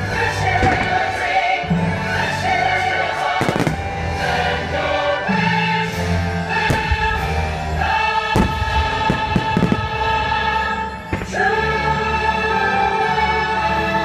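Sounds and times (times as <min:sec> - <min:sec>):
choir singing sustained chords: 0:00.0 - 0:14.0
orchestral show music: 0:00.0 - 0:14.0
firework bangs: 0:03.4 - 0:03.9, 0:06.7 - 0:07.4, 0:08.3 - 0:10.2.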